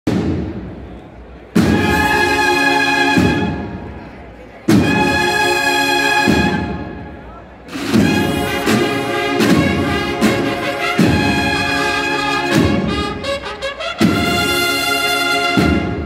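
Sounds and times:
bugles playing chords: 0:01.6 - 0:04.0, 0:04.7 - 0:16.0
heavy drum strokes: 0:07.7 - 0:13.2.

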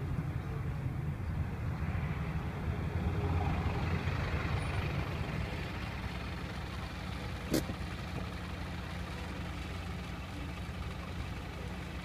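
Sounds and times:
traffic rumble: 0:00.0 - 0:12.0
van passing close: 0:00.7 - 0:12.0.

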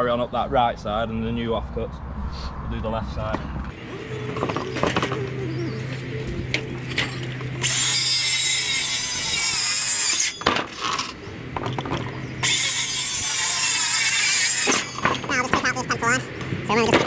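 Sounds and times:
circular saw cutting plywood: 0:07.0 - 0:11.1, 0:12.4 - 0:15.4.

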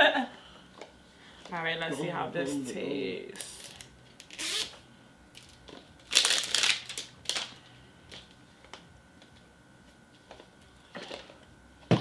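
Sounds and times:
plastic packaging crinkling: 0:05.3 - 0:08.2.

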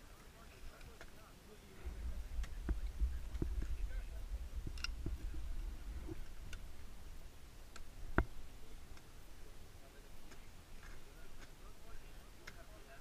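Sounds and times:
wind rumbling on microphone: 0:01.8 - 0:09.5.

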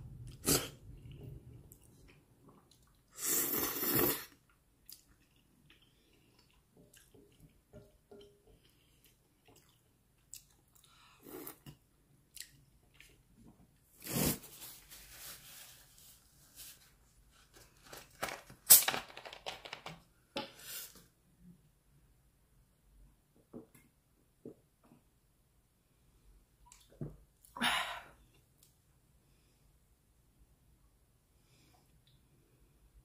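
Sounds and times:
chewing noodles: 0:03.8 - 0:07.6, 0:08.6 - 0:13.2.

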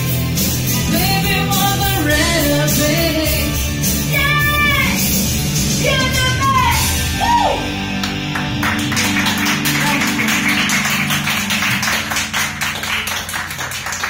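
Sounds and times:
backing music: 0:00.0 - 0:14.0
woman singing: 0:00.8 - 0:05.0
audience applause: 0:08.0 - 0:14.0.

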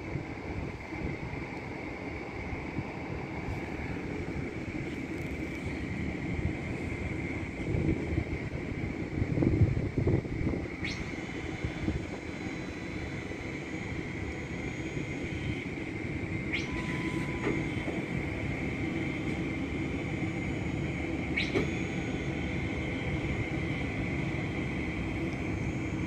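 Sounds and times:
constant high whine: 0:00.0 - 0:26.0
brief rising chirps: 0:16.5 - 0:17.6.

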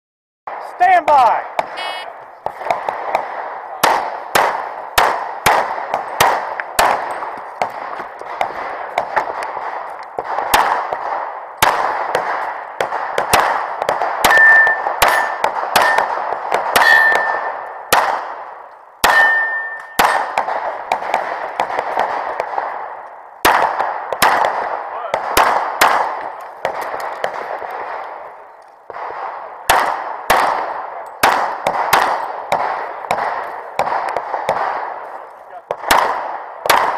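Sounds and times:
pistol shots echoing: 0:00.5 - 0:36.9
steel plates ringing: 0:14.3 - 0:16.0, 0:16.8 - 0:17.4, 0:19.1 - 0:20.0.

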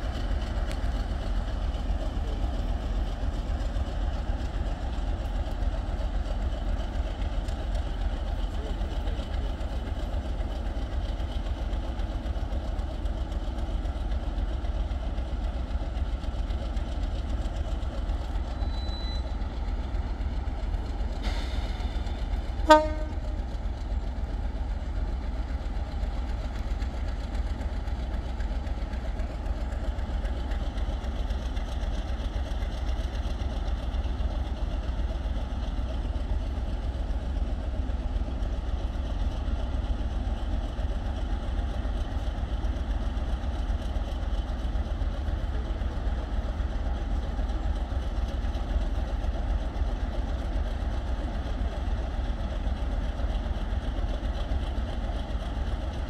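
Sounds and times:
diesel locomotives rumbling: 0:00.0 - 0:56.0
train horn toot: 0:22.6 - 0:23.4.

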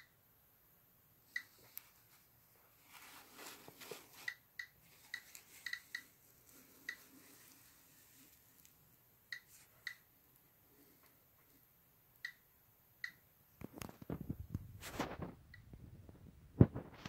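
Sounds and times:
handling rustle: 0:01.5 - 0:08.8
geiger counter clicking: 0:04.3 - 0:06.1, 0:13.0 - 0:13.3.

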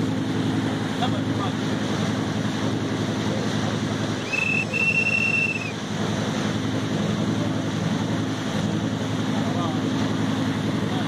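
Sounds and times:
boat engine droning: 0:00.0 - 0:11.0
water washing: 0:00.0 - 0:11.0
high steady whistle: 0:04.2 - 0:05.8.

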